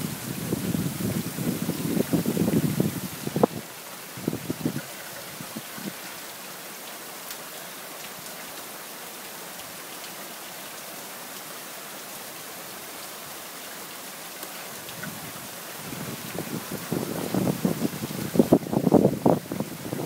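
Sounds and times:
wind buffeting microphone: 0.0s - 6.0s, 14.8s - 20.0s
heavy rain falling: 0.0s - 20.0s.

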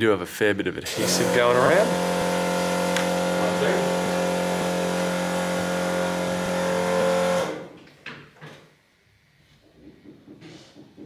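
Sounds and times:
electric motor humming: 0.9s - 7.8s.

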